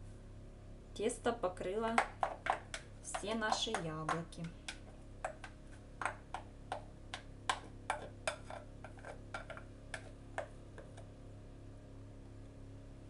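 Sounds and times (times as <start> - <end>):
spatula scraping glass bowl: 7.8 - 10.1.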